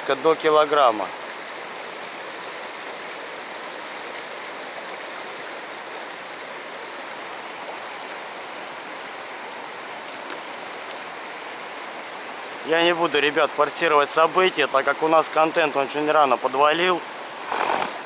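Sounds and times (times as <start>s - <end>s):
river water rushing: 0.0s - 18.0s.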